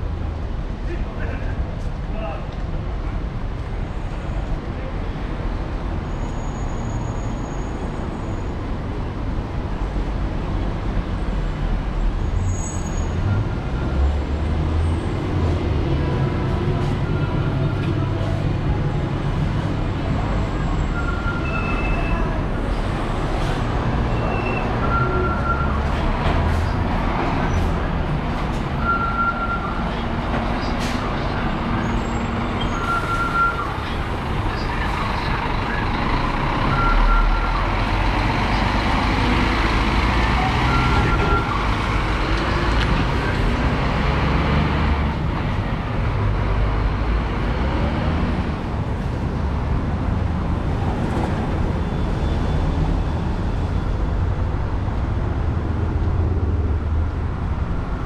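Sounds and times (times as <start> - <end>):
passing vehicles: 0.0 - 58.0.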